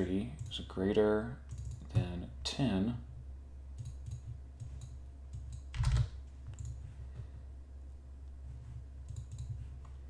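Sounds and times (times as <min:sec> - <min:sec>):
steady low hum: 0:00.0 - 0:10.0
mouse and keyboard clicks: 0:03.8 - 0:06.8, 0:09.1 - 0:10.0.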